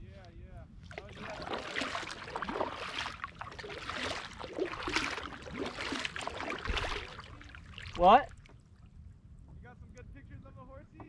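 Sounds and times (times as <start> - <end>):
paddle splashing water: 0.8 - 8.7
water gurgling along hull: 0.8 - 9.2.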